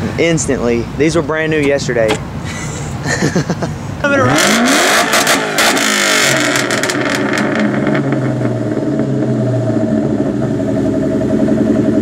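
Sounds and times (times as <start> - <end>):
car engine idling: 0.0 - 12.0
exhaust crackles: 4.0 - 12.0.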